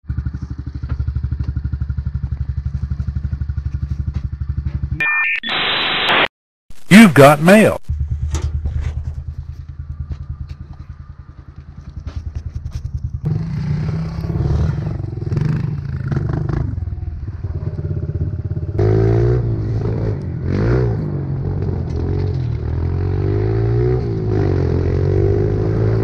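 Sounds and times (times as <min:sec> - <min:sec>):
small engine idling: 0:00.1 - 0:04.9, 0:07.9 - 0:13.5
motorbike engine revving: 0:07.9 - 0:26.0.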